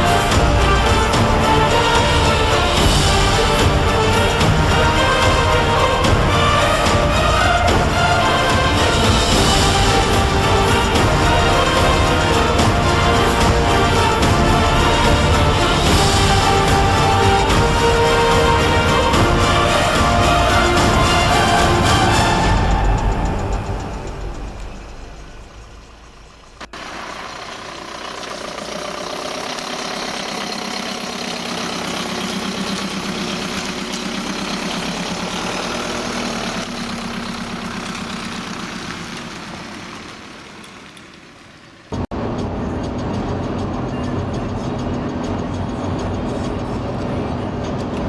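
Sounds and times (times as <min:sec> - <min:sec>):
music: 0:00.0 - 0:26.6, 0:42.0 - 0:48.0
car engine pulling away: 0:00.0 - 0:48.0
car interior road noise: 0:00.0 - 0:48.0.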